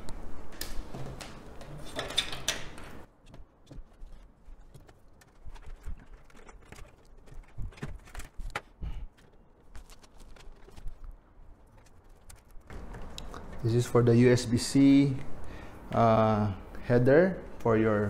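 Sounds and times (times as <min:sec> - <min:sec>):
cables rustling: 0:00.0 - 0:14.0.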